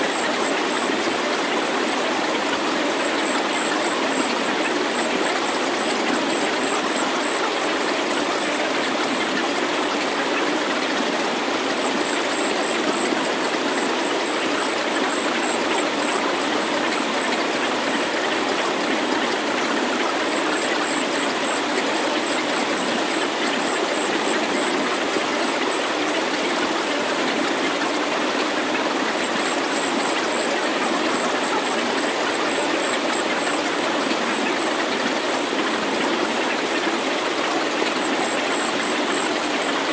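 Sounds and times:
synthesized rushing hiss: 0.0s - 9.0s
faint pulsing high tone: 0.0s - 9.4s.

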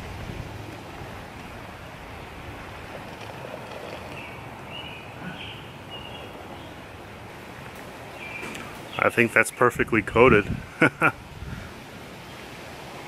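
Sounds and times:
open air hiss: 0.0s - 13.0s
bird chirping: 3.7s - 6.9s, 8.0s - 9.8s.

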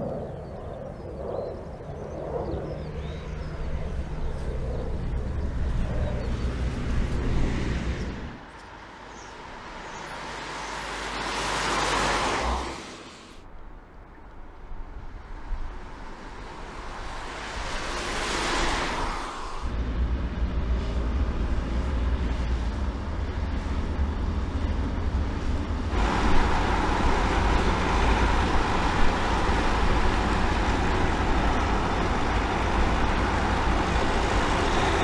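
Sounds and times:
steady low rumble: 0.0s - 8.4s
van driving past: 25.8s - 35.0s.

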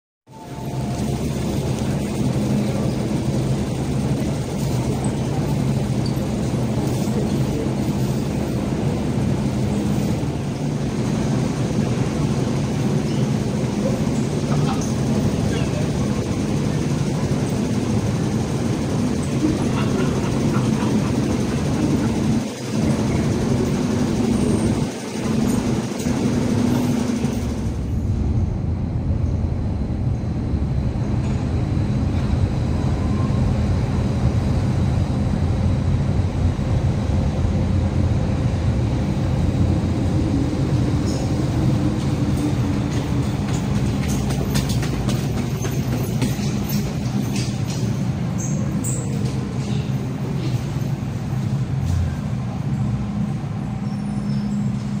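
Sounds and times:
train rumble with motor hum: 0.3s - 55.0s
train wheel clicks: 40.9s - 52.1s.

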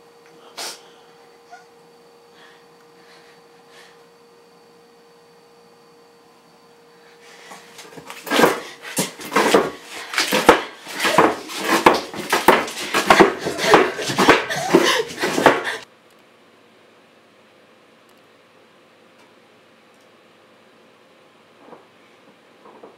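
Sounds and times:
chair rattling and knocking: 8.2s - 15.8s.

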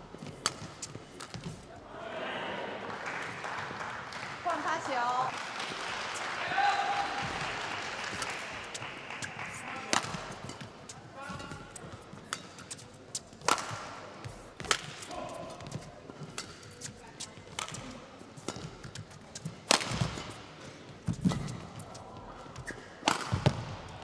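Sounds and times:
rackets striking shuttlecock: 0.2s - 1.6s, 8.0s - 20.4s, 21.1s - 22.0s, 22.6s - 23.9s.

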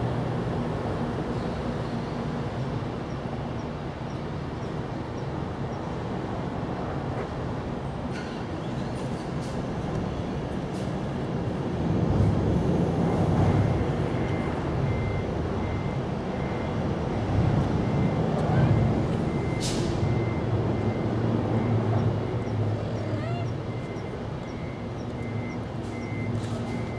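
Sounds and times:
heavy vehicle engine running: 0.0s - 26.9s
reversing beeper: 17.8s - 26.9s.

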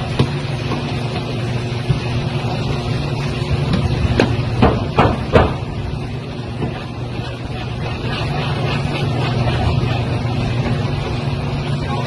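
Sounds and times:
steady low hum: 0.0s - 12.0s
tool knocking on car body: 3.7s - 5.6s.

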